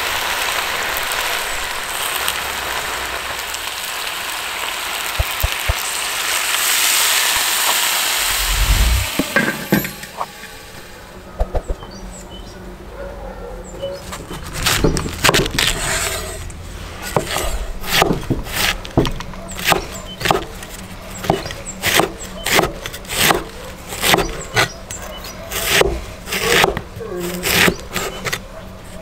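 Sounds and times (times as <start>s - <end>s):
cleaver chopping cabbage on board: 14.1s - 16.2s, 17.0s - 24.8s, 25.5s - 28.4s.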